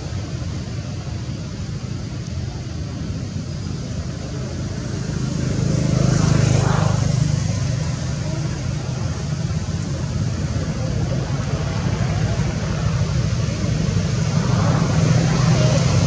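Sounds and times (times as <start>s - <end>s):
vehicle passing by: 4.7s - 10.4s.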